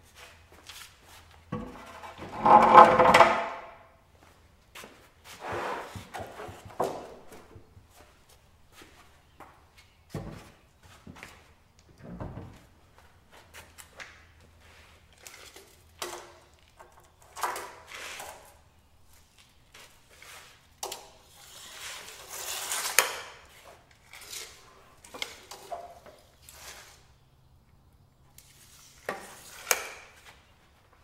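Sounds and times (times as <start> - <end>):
knocks and scrapes on wood: 1.5 - 3.7, 5.4 - 7.7.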